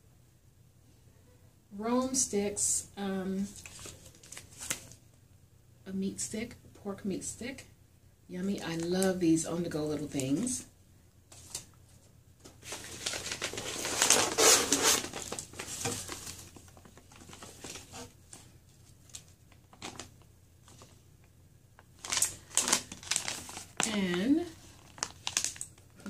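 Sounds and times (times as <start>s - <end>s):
pouch crinkling: 3.5s - 5.0s, 12.6s - 18.4s, 19.0s - 21.0s, 21.9s - 25.9s
paper filler rustling: 11.3s - 20.1s, 22.0s - 24.0s.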